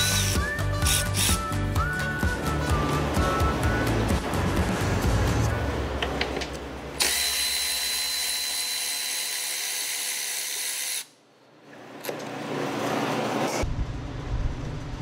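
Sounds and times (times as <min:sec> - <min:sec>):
electric ratchet motor whirring: 0:07.0 - 0:11.1.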